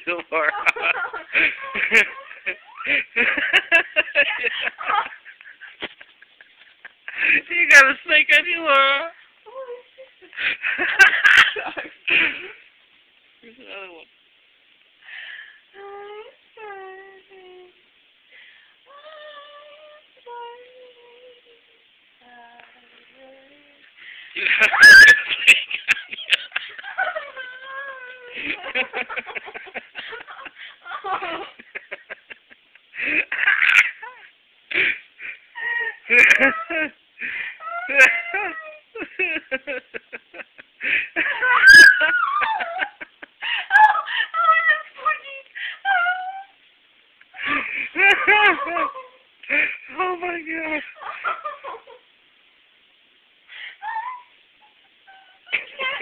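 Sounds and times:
woman giggling: 0.4s - 7.5s, 24.4s - 37.0s, 37.6s - 46.3s, 47.4s - 52.0s, 53.8s - 56.0s
high voice singing wordless notes: 18.9s - 23.9s
woman squealing: 24.6s - 25.4s, 41.4s - 42.8s, 53.8s - 55.6s.

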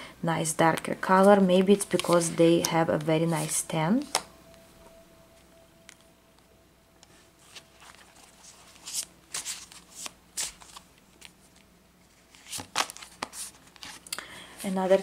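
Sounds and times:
cards being shuffled: 1.2s - 4.3s, 7.1s - 14.1s.

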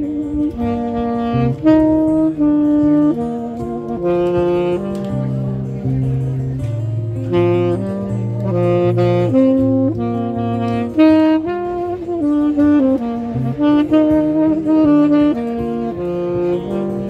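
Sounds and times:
saxophone melody: 0.0s - 17.0s
sustained low bass notes: 0.0s - 17.0s.

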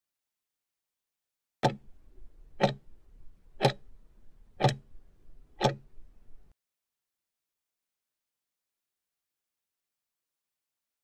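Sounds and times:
sharp clock-like ticks: 1.6s - 1.9s, 2.6s - 2.9s, 3.6s - 3.9s, 4.6s - 4.9s, 5.6s - 5.9s.

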